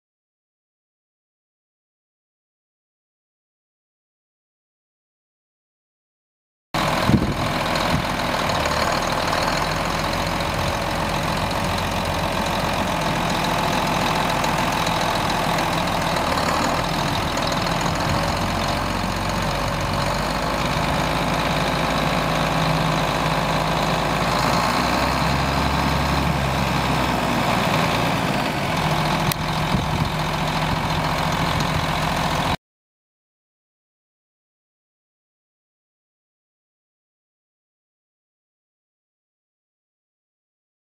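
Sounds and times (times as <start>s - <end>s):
diesel tractor engine idling: 6.8s - 32.6s.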